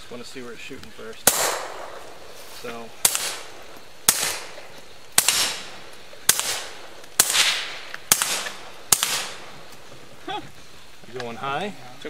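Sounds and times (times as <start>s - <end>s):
suppressed pistol shots: 1.2s - 9.8s.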